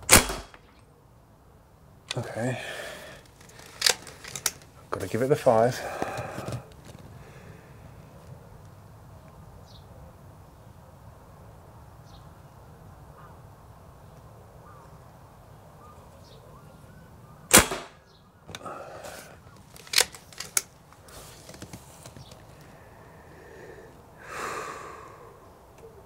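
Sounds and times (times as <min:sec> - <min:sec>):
air rifle shot: 0:00.0 - 0:00.7, 0:17.5 - 0:18.0
faint rattles: 0:02.1 - 0:07.2
rifle lever clicks: 0:03.6 - 0:04.7, 0:19.8 - 0:20.7.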